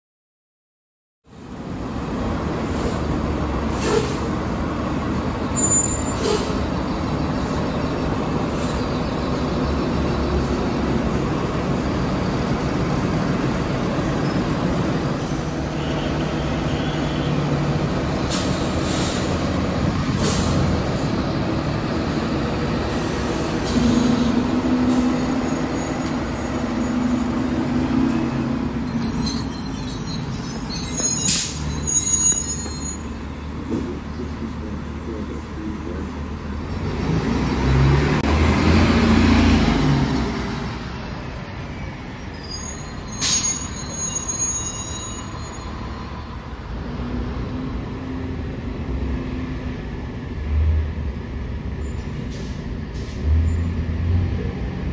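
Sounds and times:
bus engine drone: 1.2 - 54.9
air brake hisses: 3.7 - 4.3, 6.2 - 6.6, 18.3 - 19.4, 20.1 - 20.7, 52.3 - 53.3
high squeal: 28.8 - 33.4, 41.0 - 46.2.

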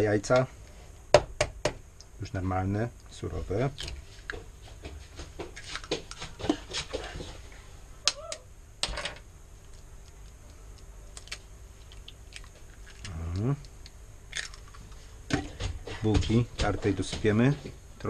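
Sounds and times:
high cry: 8.0 - 8.5
eggshells cracking: 9.6 - 15.0.

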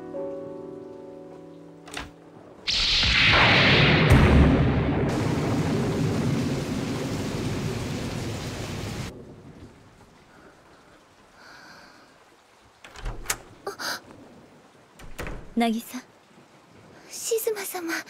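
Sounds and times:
heavy rain: 1.9 - 18.0
thunder rumbling: 2.4 - 11.5.

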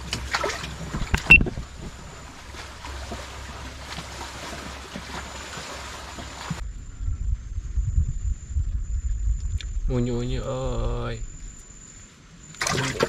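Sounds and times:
low uneven rumble: 0.0 - 12.5
open-air background hiss: 0.0 - 13.0.

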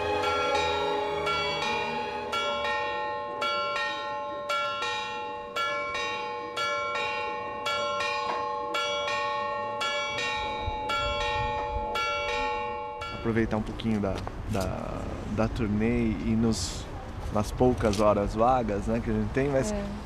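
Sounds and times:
church bells ringing: 0.0 - 13.6.

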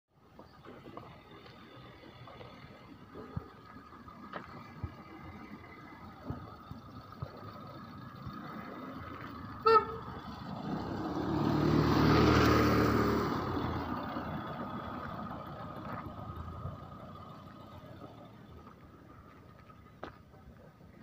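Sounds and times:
motorcycle passing by: 8.3 - 18.4
short horn toot: 9.6 - 10.1.

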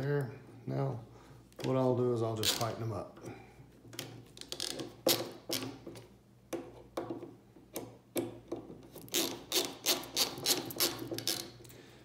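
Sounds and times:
screwdriver clicking and rasping: 8.9 - 11.5.

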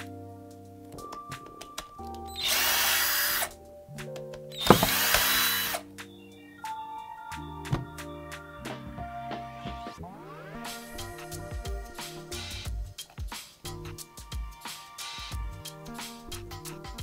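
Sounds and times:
background music: 0.0 - 17.0
electric screwdriver running: 2.4 - 3.5, 4.6 - 5.8.

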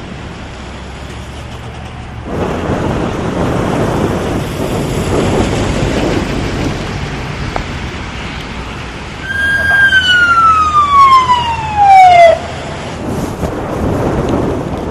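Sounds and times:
emergency vehicle siren: 9.2 - 13.1
rain hiss: 12.4 - 14.9.

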